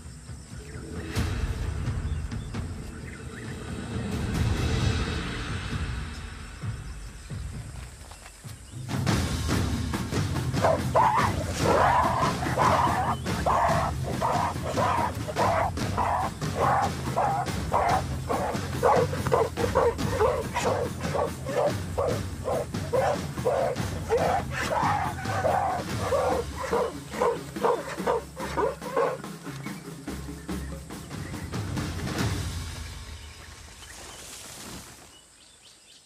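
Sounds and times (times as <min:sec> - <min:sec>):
gorillas calling: 0:10.5 - 0:31.6.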